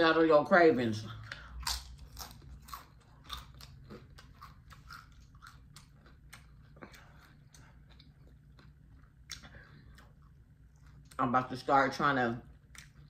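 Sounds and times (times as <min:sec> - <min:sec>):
chewing lettuce: 0:01.2 - 0:11.2.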